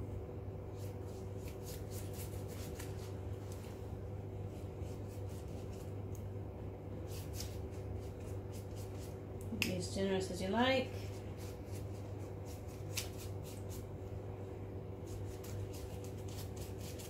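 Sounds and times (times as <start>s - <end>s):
pastry brush brushing dough: 0.6s - 3.8s, 4.4s - 6.0s, 7.0s - 9.2s, 10.7s - 14.0s, 14.9s - 17.0s.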